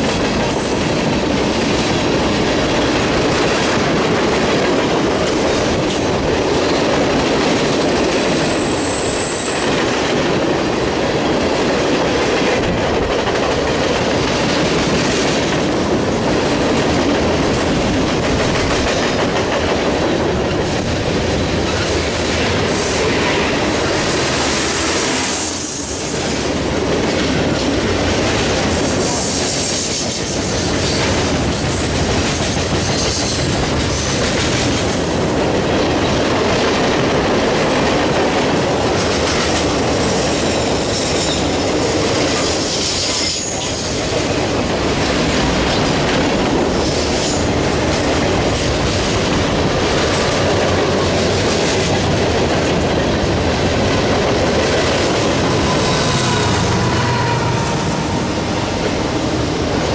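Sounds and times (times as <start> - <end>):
train wheels on rails: 0.0 - 59.9
high-pitched wheel squeals: 8.4 - 9.7.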